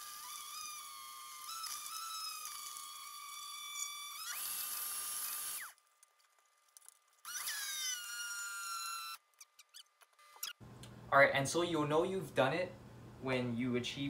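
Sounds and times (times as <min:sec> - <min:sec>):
blender motor straining: 0:00.0 - 0:05.8, 0:07.2 - 0:10.6.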